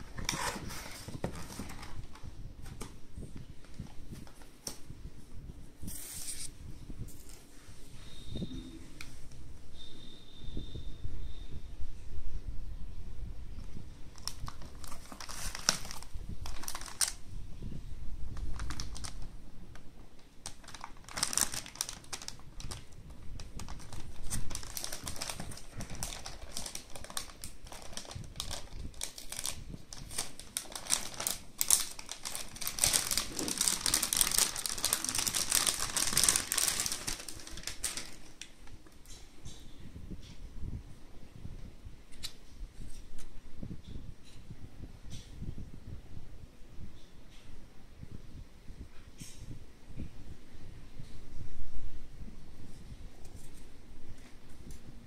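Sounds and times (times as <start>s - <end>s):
plastic bag crinkling: 0.0s - 2.2s, 14.1s - 17.2s, 18.3s - 19.3s, 20.2s - 38.7s.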